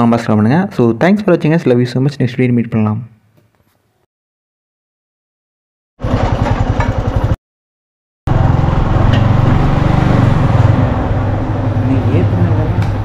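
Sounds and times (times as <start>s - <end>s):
motorbike engine running: 6.0s - 7.4s, 8.3s - 13.0s.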